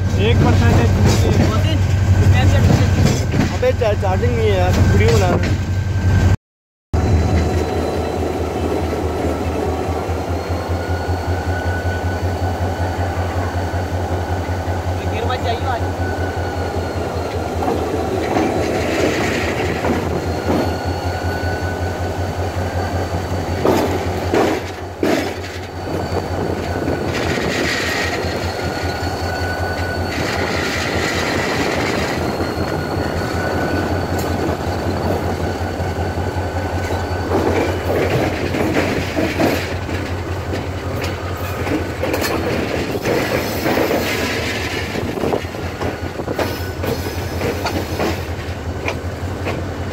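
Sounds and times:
wheels clacking over rail joints: 0.0s - 3.9s, 15.8s - 49.9s
wheel flange squeals: 7.0s - 49.4s
locomotive engine drone: 7.0s - 49.9s.

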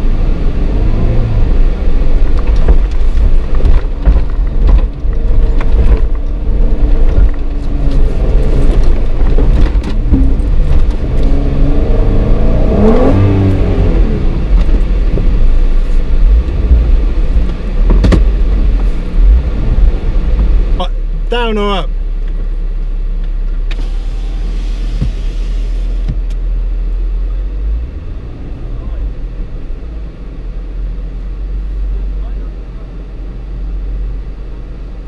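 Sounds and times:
off-road vehicle engine: 0.0s - 35.0s
vehicle jolting knocks: 16.6s - 18.5s.

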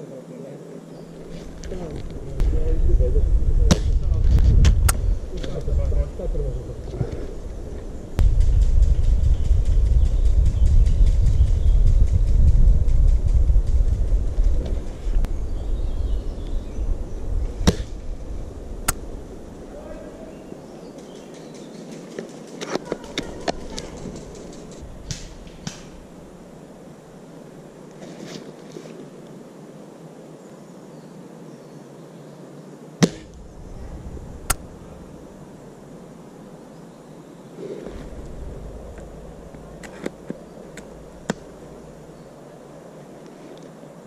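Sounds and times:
faint steady hiss: 0.0s - 11.3s, 12.0s - 44.0s
low microphone rumble: 1.2s - 20.8s, 23.2s - 27.8s, 33.0s - 36.4s, 37.8s - 42.5s
airsoft rifle shot: 33.0s - 33.4s.

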